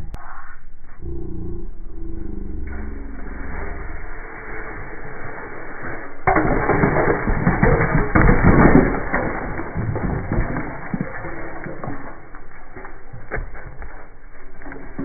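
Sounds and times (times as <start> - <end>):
bricks clattering and cracking: 6.2 - 15.0.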